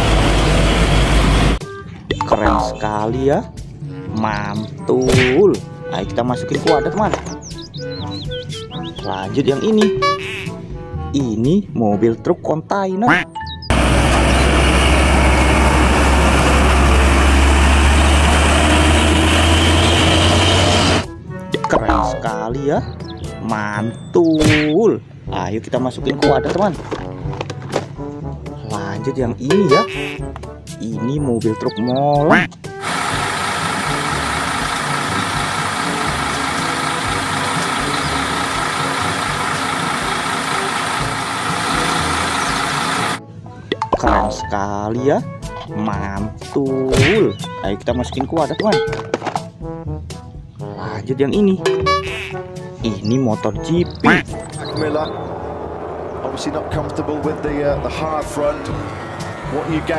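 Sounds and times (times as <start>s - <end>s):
truck diesel engine rumbling: 0.0s - 2.2s, 13.7s - 21.3s, 32.7s - 43.5s, 53.8s - 59.9s
mixer drum turning: 32.8s - 43.2s.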